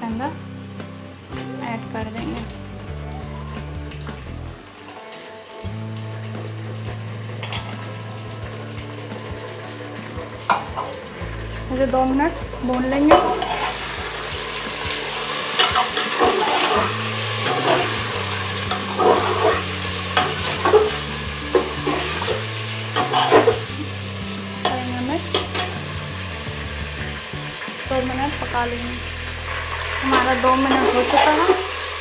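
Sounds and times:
meat sizzling in hot oil: 0:00.0 - 0:32.0
steel ladle scraping a pot: 0:15.4 - 0:21.0, 0:23.0 - 0:23.7.

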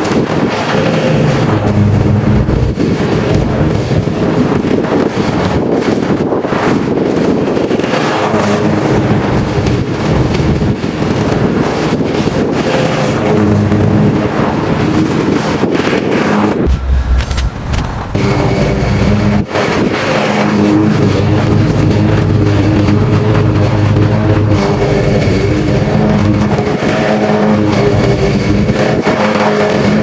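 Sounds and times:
wind buffeting microphone: 0:00.0 - 0:30.0
lawn mower engine running: 0:00.5 - 0:05.2, 0:16.2 - 0:30.0.

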